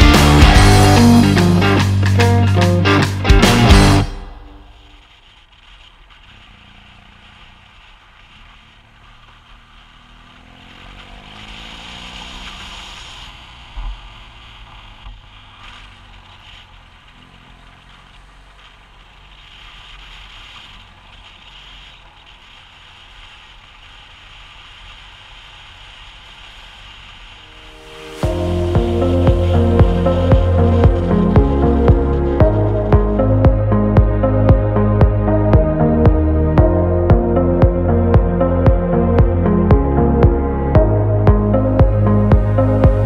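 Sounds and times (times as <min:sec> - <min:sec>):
motorcycle engine revving: 0:00.0 - 0:05.0, 0:06.1 - 0:24.0, 0:25.6 - 0:43.0.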